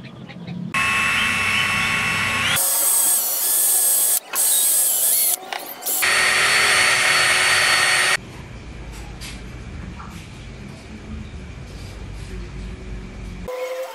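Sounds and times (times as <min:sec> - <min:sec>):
cordless drill whining: 0:00.8 - 0:08.2.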